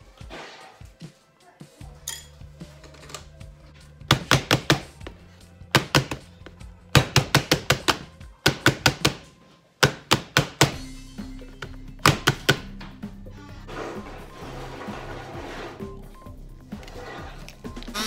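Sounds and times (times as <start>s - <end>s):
background music: 0.0s - 18.0s.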